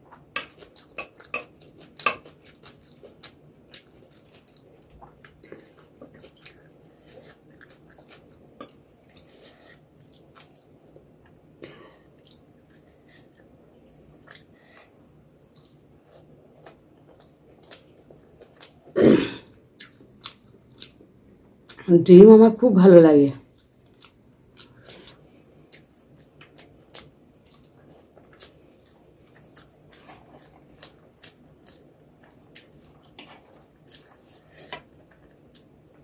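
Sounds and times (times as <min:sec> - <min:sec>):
wet chewing and mouth sounds: 0:00.0 - 0:11.5, 0:12.1 - 0:18.9, 0:19.7 - 0:21.8, 0:23.5 - 0:36.0
metal spoon clinking on glass bowl: 0:00.4 - 0:02.3.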